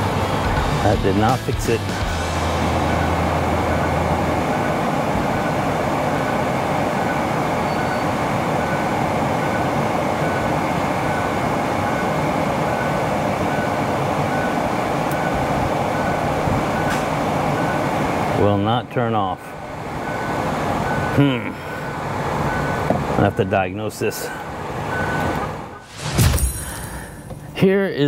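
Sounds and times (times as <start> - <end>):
faint electronic beep: 7.1 - 8.8.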